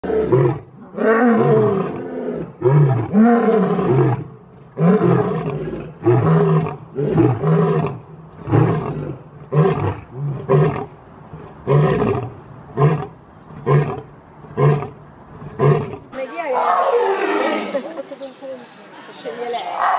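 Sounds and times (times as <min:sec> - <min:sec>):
lion roaring: 0:00.0 - 0:17.6.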